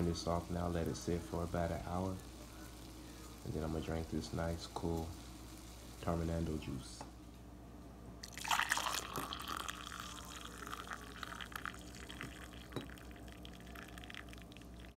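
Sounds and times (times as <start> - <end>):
juice pouring into glass: 8.2 - 15.0.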